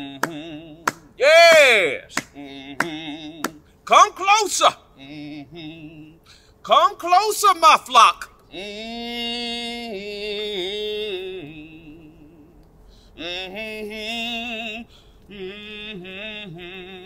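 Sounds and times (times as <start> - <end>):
man singing wordless notes: 0.0 - 12.6, 13.2 - 17.0.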